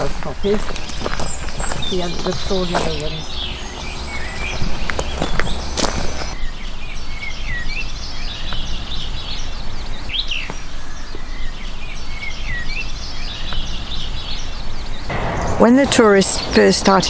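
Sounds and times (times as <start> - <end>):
songbirds chirping: 0.0 - 17.0
loud sweeping bird call: 1.0 - 8.5.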